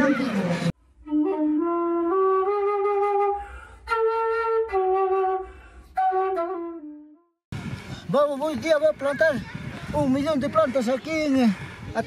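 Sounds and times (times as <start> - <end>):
slow flute melody: 0.8 - 7.4.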